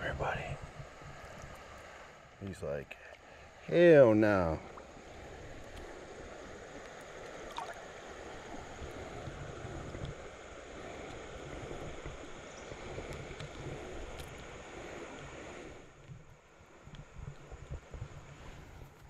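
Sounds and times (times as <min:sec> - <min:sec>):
river water rushing: 0:03.2 - 0:09.2
small splashes: 0:07.4 - 0:07.8
faint clicks: 0:13.0 - 0:14.5.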